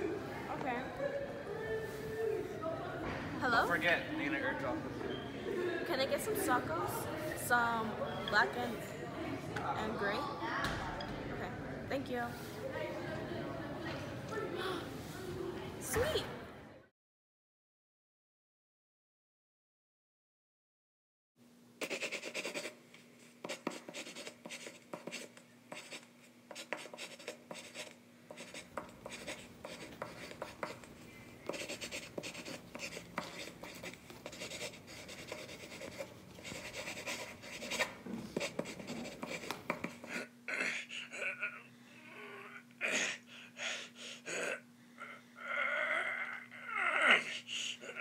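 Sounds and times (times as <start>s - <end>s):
pencil scratching on paper: 21.8s - 40.3s
frustrated vocal sounds: 44.2s - 48.0s.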